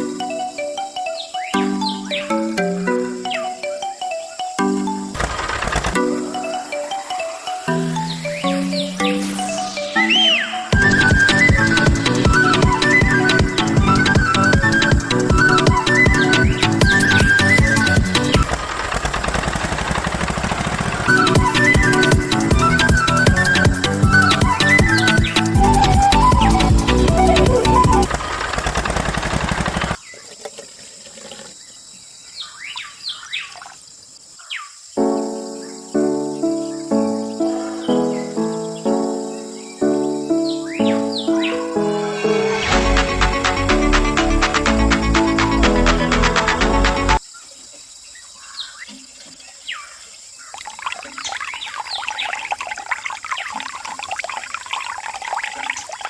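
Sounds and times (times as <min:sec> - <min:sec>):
bird chirps: 0:00.0 - 0:05.2, 0:06.0 - 0:11.4, 0:31.7 - 0:33.7, 0:34.4 - 0:42.3
background music: 0:00.0 - 0:18.5, 0:21.0 - 0:28.1, 0:35.0 - 0:47.2
water trickling into a plastic tub: 0:30.0 - 0:32.0, 0:33.2 - 0:33.9, 0:48.8 - 0:56.0.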